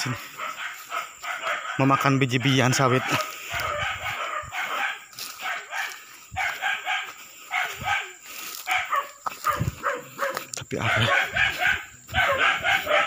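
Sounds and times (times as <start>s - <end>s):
dogs barking: 0.0s - 13.0s
footsteps thumping: 3.0s - 13.0s.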